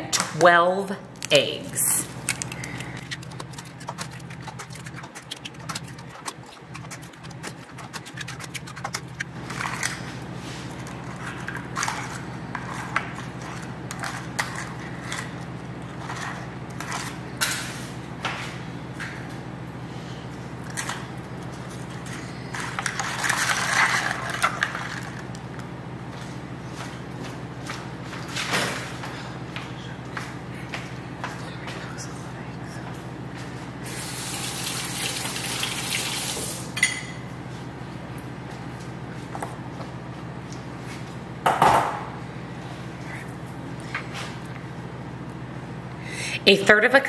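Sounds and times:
low steady hum: 0.0s - 47.0s
eggshells cracking: 2.2s - 9.3s.

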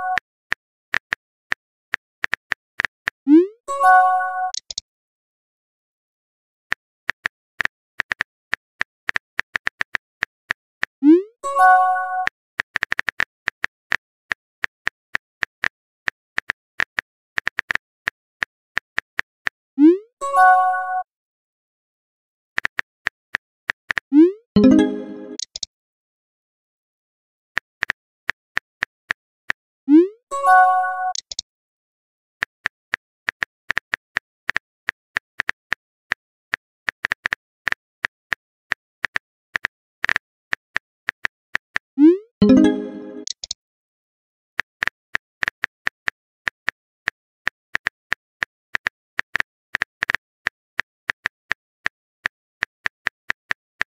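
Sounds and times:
phone keyboard typing clicks: 4.5s - 4.8s, 24.6s - 25.7s, 31.1s - 31.4s, 42.4s - 43.6s
short message chime: 24.6s - 25.4s, 42.4s - 43.3s.

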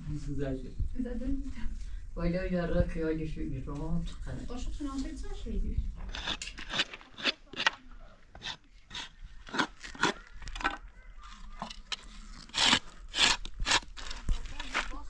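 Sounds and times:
tool scraping: 6.0s - 15.0s.

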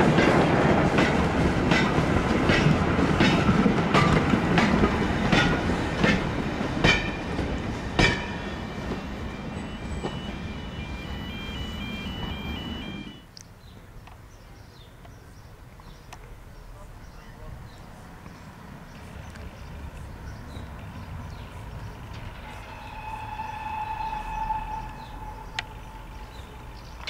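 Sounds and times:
wheels clicking over rail joints: 0.0s - 9.0s
freight train rolling past: 0.0s - 13.2s, 20.4s - 27.0s.

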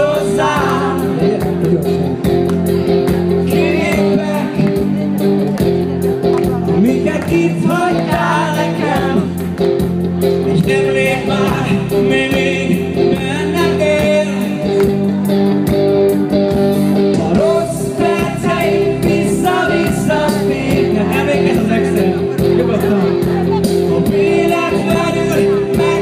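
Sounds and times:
man singing into microphone: 0.0s - 2.3s, 3.4s - 5.0s, 6.6s - 9.5s, 10.4s - 15.0s, 17.1s - 26.0s
pop accompaniment with steady beat: 0.0s - 26.0s.

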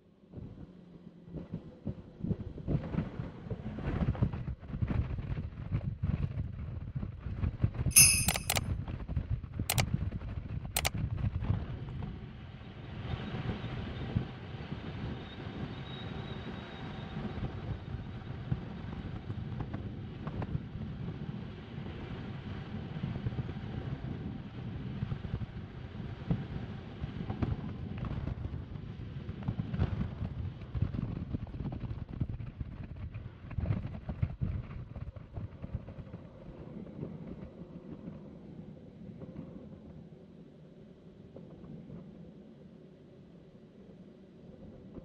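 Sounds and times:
sharp clicks: 7.9s - 8.6s.

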